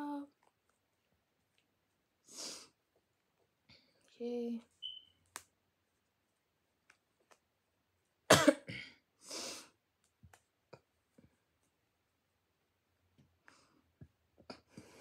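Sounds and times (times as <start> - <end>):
person coughing: 8.3 - 9.0.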